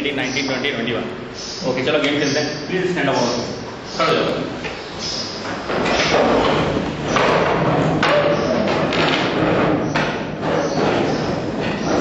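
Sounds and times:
chairs knocking and bumping: 4.4 - 12.0.

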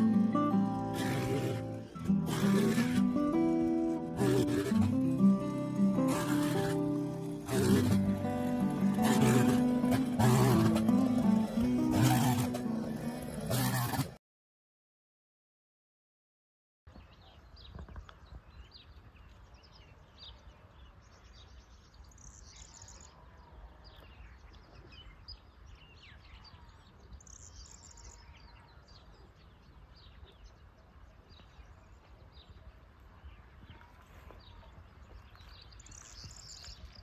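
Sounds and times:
birds chirping: 16.9 - 37.0.

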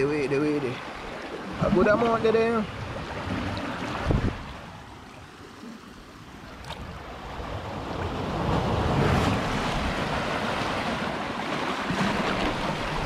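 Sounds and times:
sea surf washing over rocks: 0.0 - 5.6, 6.5 - 13.0
wind buffeting microphone: 2.6 - 4.7.

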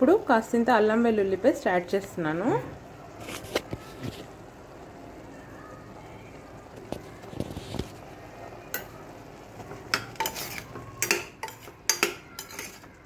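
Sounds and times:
metal spoon scraping a pot: 9.9 - 13.0
spoon clinking against pot: 9.9 - 13.0.

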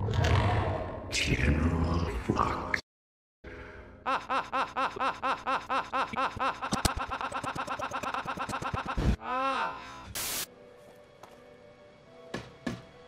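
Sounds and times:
looped stuttering laugh: 4.1 - 9.2
burst of hiss: 10.1 - 10.5.

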